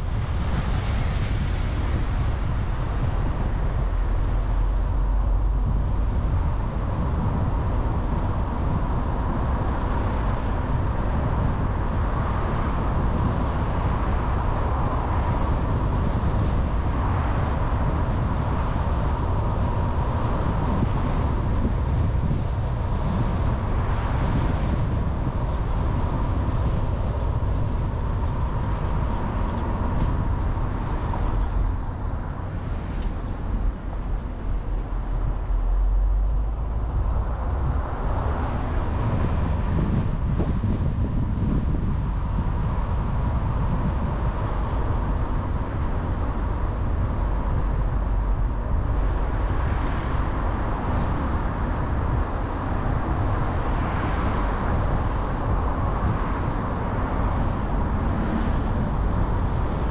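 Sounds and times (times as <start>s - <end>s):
car engine and tyre rumble: 0.0s - 59.9s.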